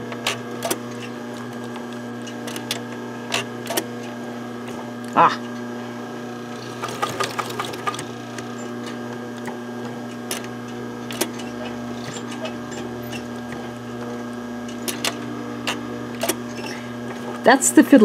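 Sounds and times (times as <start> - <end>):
sewing machine humming: 6.1 - 17.4.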